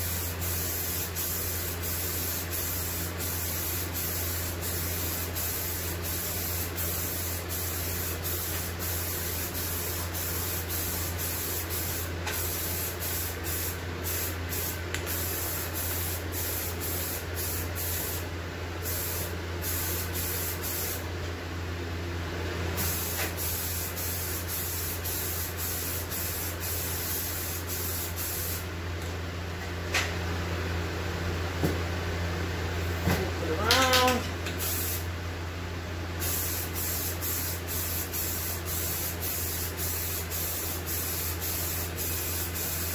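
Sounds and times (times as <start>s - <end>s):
aerosol spray hiss: 0.0s - 18.2s, 18.8s - 21.0s, 22.8s - 28.6s, 34.6s - 35.0s, 36.2s - 42.9s.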